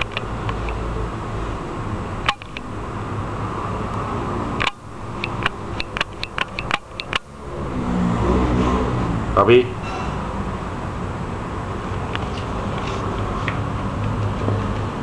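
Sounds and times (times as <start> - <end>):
sharp clicks and taps: 0.0 - 0.8, 2.2 - 2.8, 4.6 - 7.3
steady low hum: 0.0 - 15.0.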